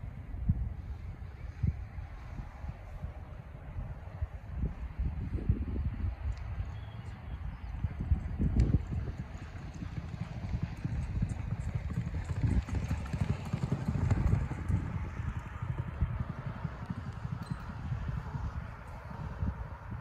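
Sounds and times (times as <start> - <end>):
hoofbeats on dirt: 6.7 - 19.4.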